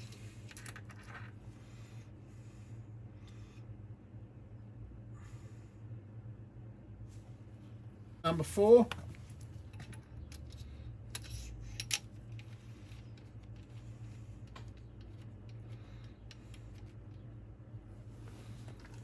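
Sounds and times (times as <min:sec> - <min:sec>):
metal parts clicking and clinking: 0:00.0 - 0:01.3, 0:09.7 - 0:17.2
low steady hum: 0:00.0 - 0:19.0.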